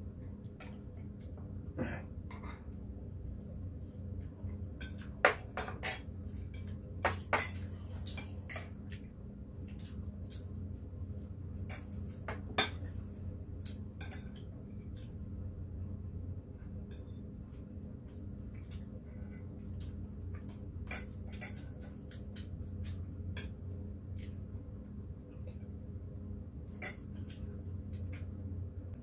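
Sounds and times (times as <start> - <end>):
low hum: 0.0 - 29.0
utensils clinking on ceramic bowls: 4.8 - 8.8, 14.0 - 14.4, 26.7 - 27.2.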